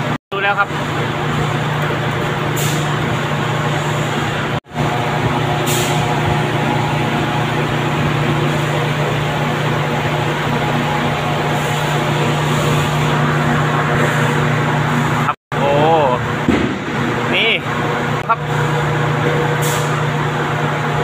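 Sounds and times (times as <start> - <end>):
conveyor machinery humming: 0.0 - 21.0
air hissing: 2.5 - 3.0, 5.5 - 6.3, 19.6 - 20.0.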